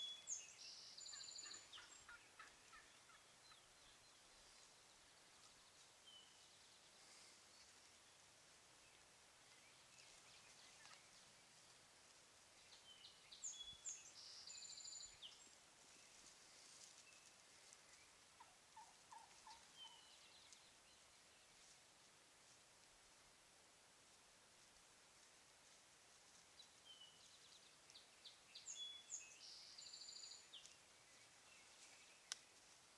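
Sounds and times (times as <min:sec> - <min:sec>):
distant wild turkey calling: 0:00.0 - 0:04.1, 0:18.0 - 0:20.6
songbird chirps: 0:00.0 - 0:32.9.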